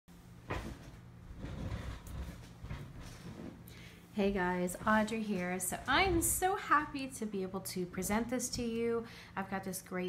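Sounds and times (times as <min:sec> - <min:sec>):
low electrical hum: 0:00.1 - 0:10.0
knocking and rustling handling: 0:00.4 - 0:06.6.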